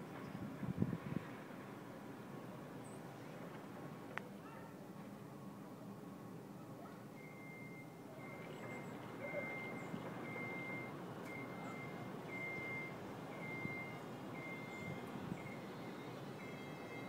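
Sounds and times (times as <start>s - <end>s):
reversing alarm beeping: 7.2s - 17.0s.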